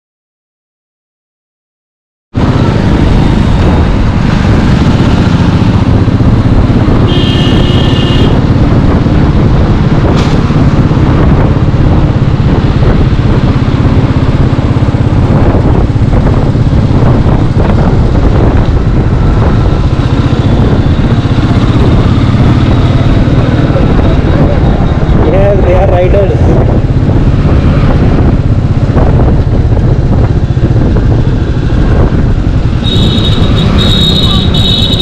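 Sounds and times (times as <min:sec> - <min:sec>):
motorcycle engine running: 0:02.4 - 0:35.0
wind rumble on microphone: 0:02.4 - 0:35.0
short high tone: 0:32.9 - 0:35.0.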